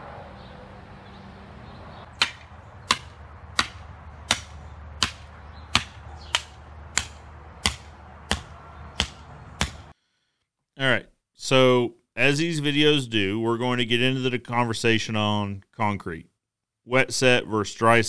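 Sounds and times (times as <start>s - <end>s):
hammer striking wooden stake: 2.2s - 9.9s.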